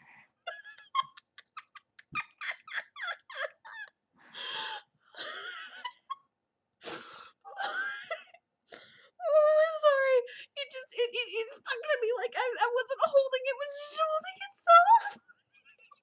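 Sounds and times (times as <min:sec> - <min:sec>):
woman laughing: 0:00.5 - 0:04.0, 0:04.6 - 0:06.3, 0:07.5 - 0:08.4.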